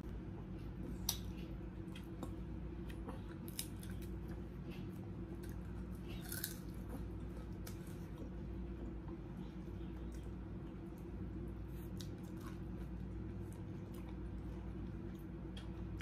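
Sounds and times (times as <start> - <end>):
steady low hum: 0.0 - 16.0
crisp fried fish crunching: 5.3 - 8.2.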